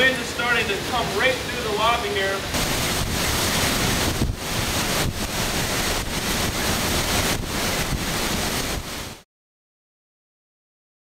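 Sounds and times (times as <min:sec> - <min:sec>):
strong wind rushing: 0:02.5 - 0:09.2
wind buffeting microphone: 0:02.5 - 0:09.2.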